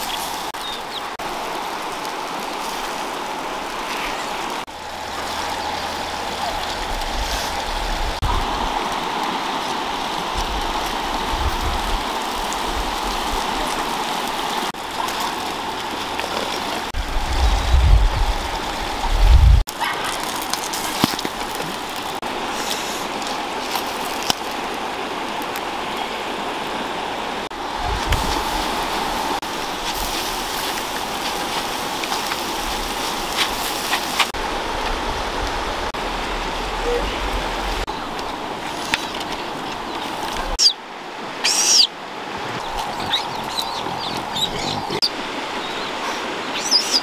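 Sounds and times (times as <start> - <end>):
steady rushing outdoor noise: 0.0 - 47.0
wind buffeting microphone: 4.4 - 14.6, 16.8 - 19.7, 27.4 - 41.2.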